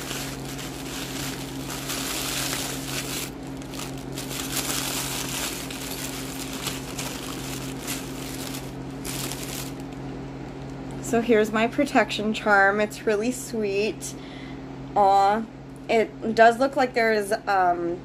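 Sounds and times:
wrapping rustling: 0.0s - 10.0s
steady low hum: 0.0s - 16.3s.

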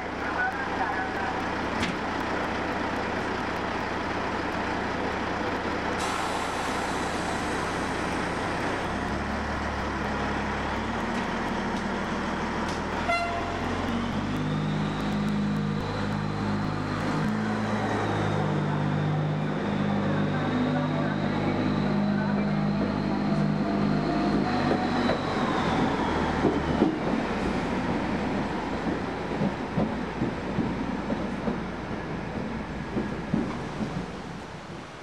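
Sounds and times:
locomotive diesel engine running: 0.0s - 34.4s.

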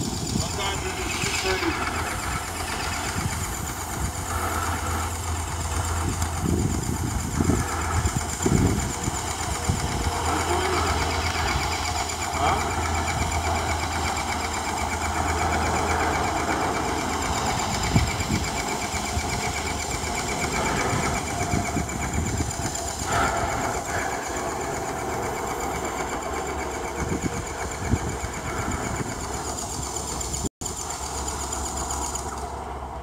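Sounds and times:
small engine running: 0.0s - 33.0s.

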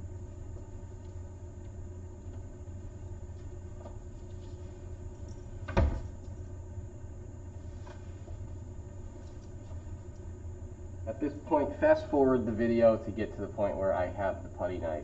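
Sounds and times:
steady low hum: 0.0s - 15.0s
cabinet door banging shut: 5.7s - 6.1s.

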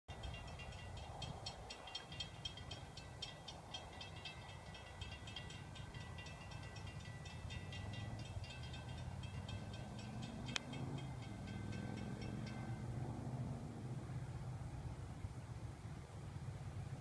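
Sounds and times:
crossing bell ringing: 0.1s - 13.4s.

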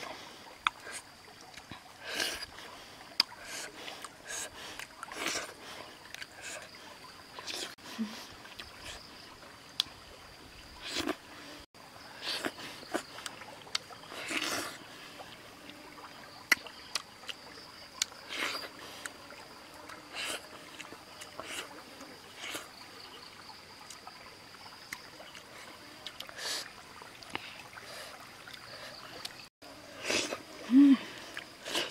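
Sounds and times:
faint trickling stream: 0.0s - 31.9s
chewing: 3.2s - 6.7s, 12.2s - 14.8s.

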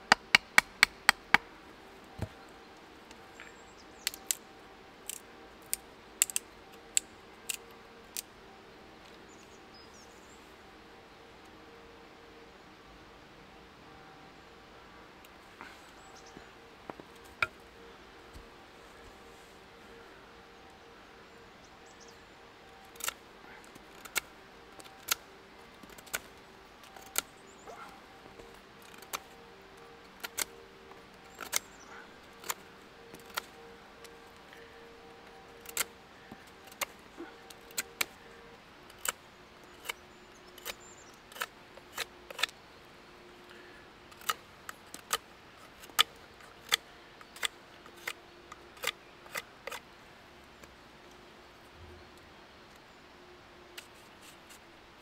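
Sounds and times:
knife carving wood: 22.8s - 29.4s, 30.2s - 30.6s, 31.2s - 31.7s, 32.4s - 34.2s, 38.9s - 42.5s.

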